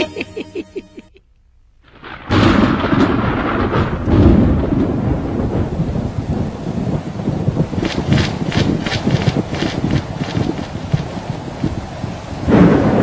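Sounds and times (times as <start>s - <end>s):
heavy rain: 1.9s - 13.0s
rolling thunder: 1.9s - 13.0s.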